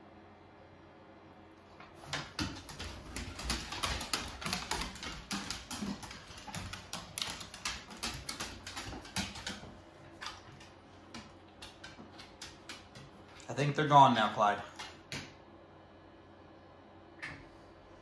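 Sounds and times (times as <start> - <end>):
dog claws clicking on wooden floor: 1.8 - 15.3.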